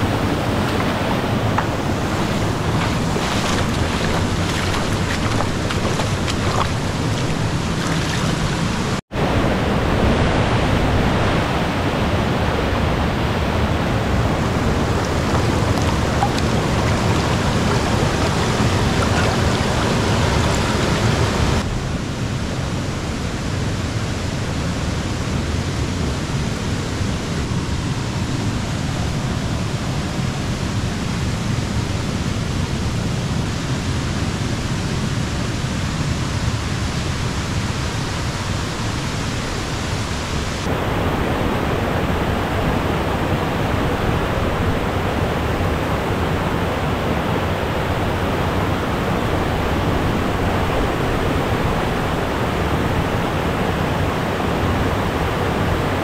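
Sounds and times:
river water rushing: 0.0 - 21.7.

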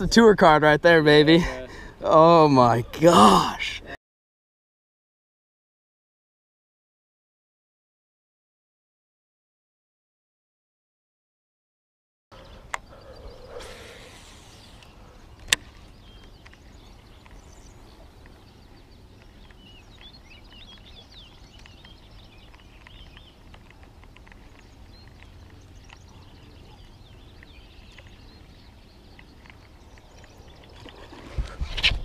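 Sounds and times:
faint birds chirping: 12.3 - 32.0
small clicks: 21.5 - 26.1.

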